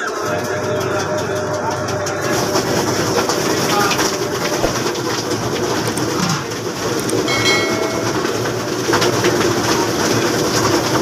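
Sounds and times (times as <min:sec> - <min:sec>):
market din: 0:00.0 - 0:11.0
short high-pitched tone: 0:07.3 - 0:08.5.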